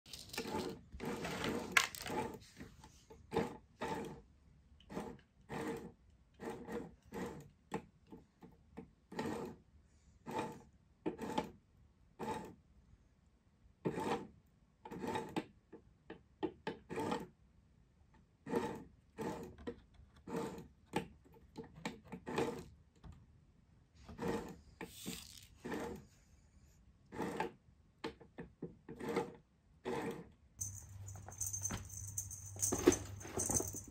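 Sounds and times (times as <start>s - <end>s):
plastic cat toy scraping and rattling: 0.1s - 7.5s, 9.1s - 9.6s, 10.2s - 11.6s, 12.2s - 12.6s, 14.9s - 15.5s, 18.4s - 22.8s, 24.0s - 26.2s, 27.1s - 27.6s, 28.8s - 33.9s.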